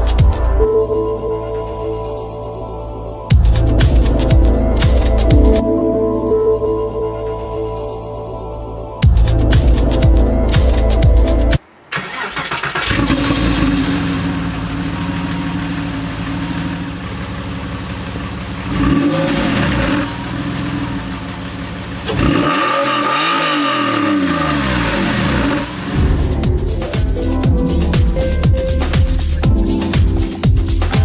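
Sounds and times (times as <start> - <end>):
car engine idling and revving: 3.3 - 5.6, 9.0 - 31.0.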